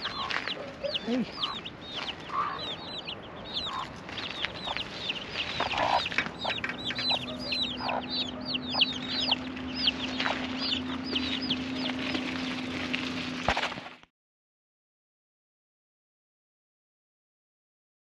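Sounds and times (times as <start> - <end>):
hen clucking: 0.0 - 12.6
chicks peeping: 0.0 - 13.0.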